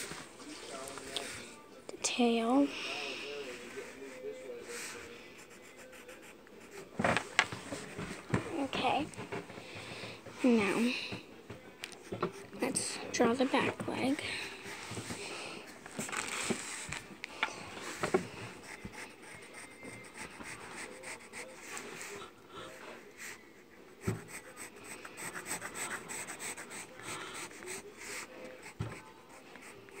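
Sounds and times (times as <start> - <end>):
rubbing and scratching on paper: 14.5 - 17.1, 17.8 - 22.2, 24.0 - 30.0.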